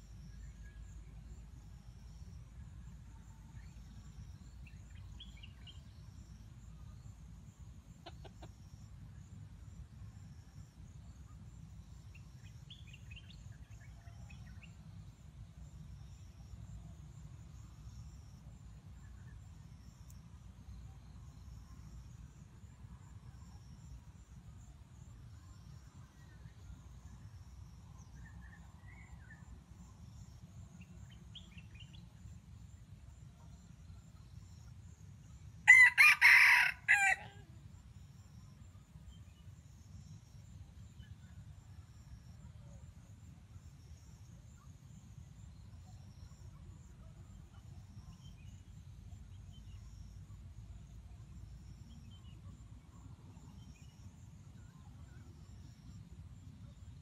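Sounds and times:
rooster crowing: 35.7 - 37.4.

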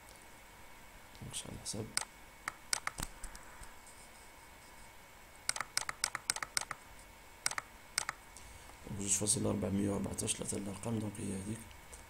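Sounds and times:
sharp computer clicks: 1.9 - 3.1, 5.5 - 6.8, 7.4 - 8.2.

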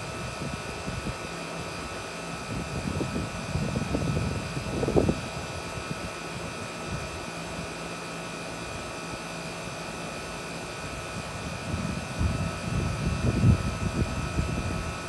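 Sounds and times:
air conditioner unit humming: 0.0 - 15.0.

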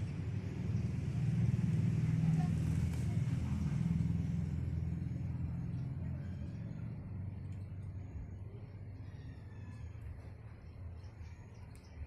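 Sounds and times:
passing vehicle engine rumble: 0.0 - 12.0.

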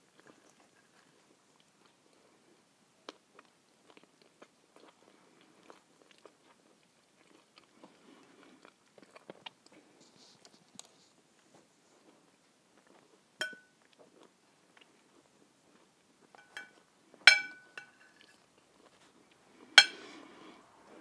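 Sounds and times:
soft chewing: 0.0 - 21.0
cutlery clinking on plate: 13.4 - 13.8, 16.4 - 18.3, 19.8 - 20.1.

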